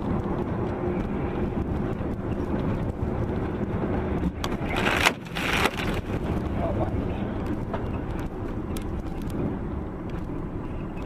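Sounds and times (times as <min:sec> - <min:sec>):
car engine and road rumble: 0:00.0 - 0:11.0.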